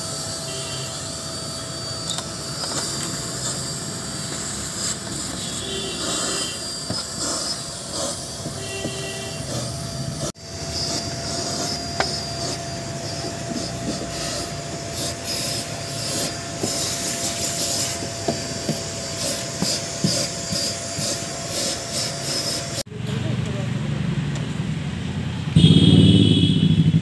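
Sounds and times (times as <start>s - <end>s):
vacuum cleaner whining: 0.0s - 22.9s
hose nozzle scraping floor mats: 4.3s - 22.8s.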